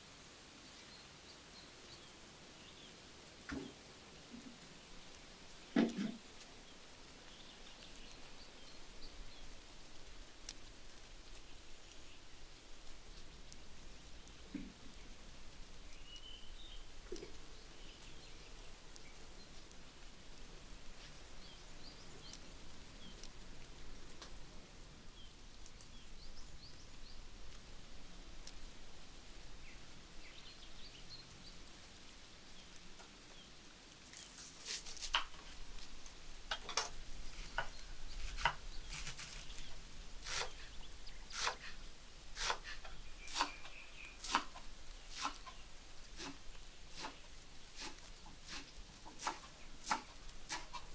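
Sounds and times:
steady background hiss: 0.0s - 50.9s
faint bird chirps: 15.8s - 19.7s, 42.7s - 46.4s.

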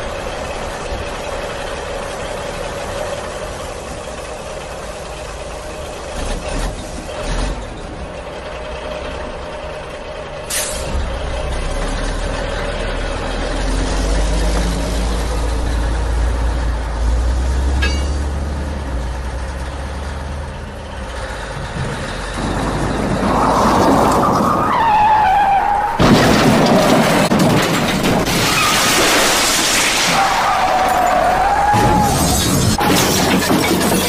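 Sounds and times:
heavy truck engine rumble: 0.0s - 34.0s
loud crashing clatter: 21.6s - 24.8s, 25.8s - 34.0s.

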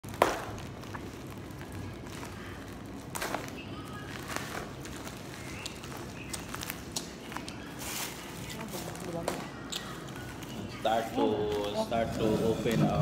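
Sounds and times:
plastic packaging crinkling: 0.0s - 13.0s
steady room hum: 0.0s - 13.0s.

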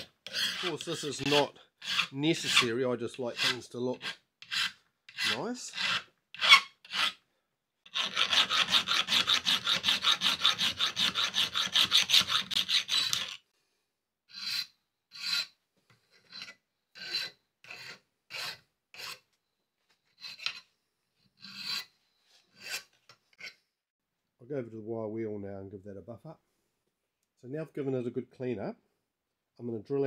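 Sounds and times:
hand file rasping metal: 0.0s - 7.2s, 7.9s - 13.4s, 14.3s - 19.2s, 20.2s - 20.7s, 21.4s - 23.6s.

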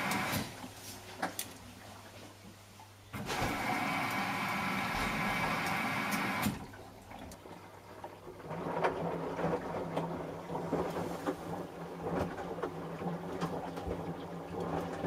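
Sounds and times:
water rushing through washing machine: 0.0s - 2.1s, 3.2s - 15.0s
washing machine knocking: 3.4s - 6.6s.

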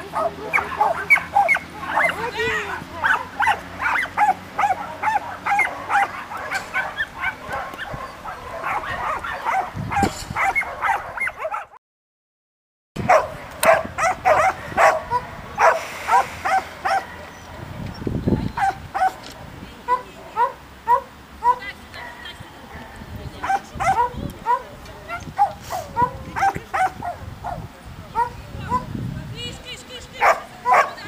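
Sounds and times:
dog barking in high yips: 0.0s - 2.3s, 3.0s - 11.8s, 13.1s - 17.2s, 18.6s - 19.3s, 23.4s - 27.6s, 30.2s - 31.0s.

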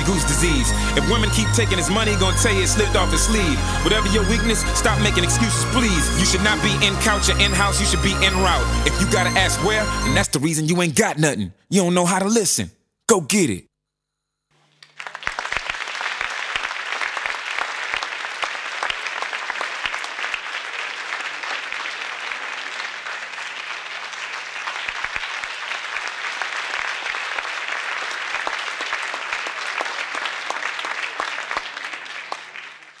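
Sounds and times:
audience applause: 14.8s - 33.0s.

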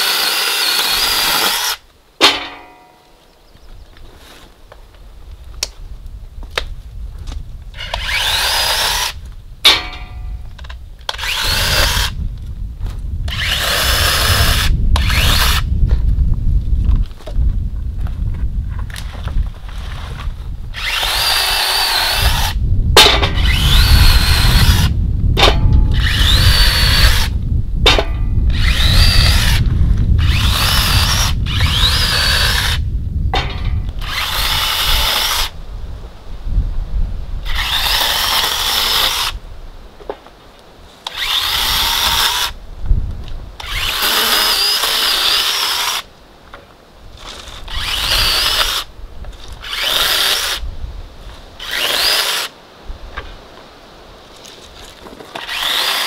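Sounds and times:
electric chainsaw cutting branches: 0.0s - 1.8s, 7.8s - 10.3s, 11.1s - 12.2s, 13.3s - 15.7s, 20.7s - 32.8s, 33.4s - 35.6s, 37.4s - 39.4s, 41.0s - 42.6s, 43.6s - 46.1s, 47.2s - 50.6s, 51.6s - 52.5s, 55.3s - 56.0s.

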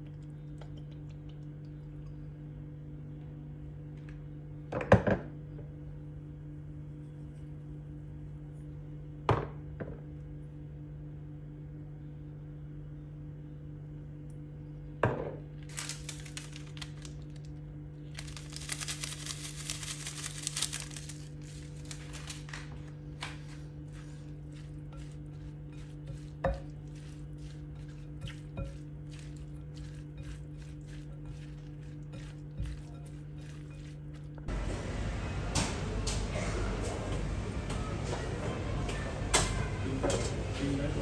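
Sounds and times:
steady low hum: 0.0s - 41.0s
packet crinkling: 15.6s - 23.4s
seasoning granules pattering into bowl: 15.7s - 17.4s, 18.1s - 34.4s.

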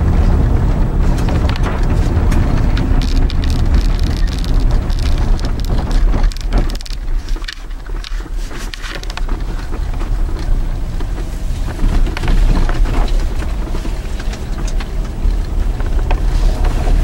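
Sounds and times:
vehicle tyres rumbling on snowy road: 0.0s - 17.0s
spattering and knocks: 1.1s - 10.6s.

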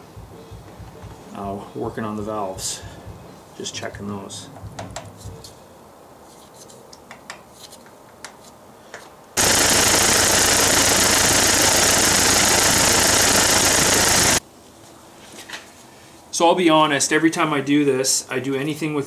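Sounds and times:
tractor engine running: 9.4s - 14.4s
valve train clattering: 9.4s - 14.4s.

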